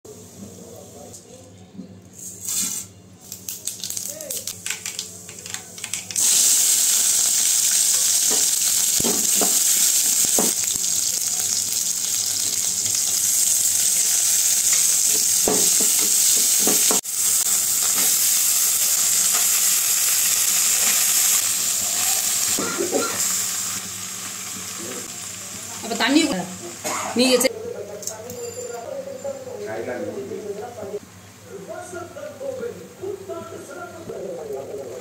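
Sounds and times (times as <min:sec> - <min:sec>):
vegetables sizzling in hot oil: 0:06.2 - 0:27.5.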